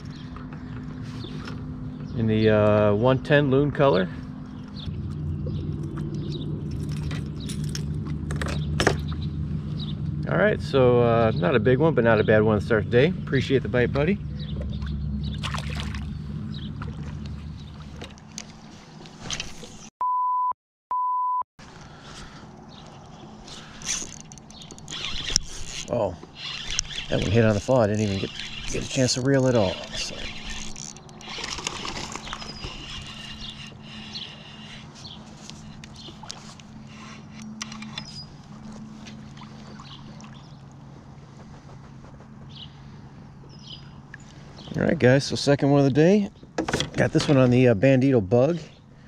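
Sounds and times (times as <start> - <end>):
water lapping around kayak: 0.0 - 2.8, 12.9 - 19.9, 21.7 - 44.7
steady low hum: 0.0 - 19.4
censor bleeps: 20.0 - 21.4.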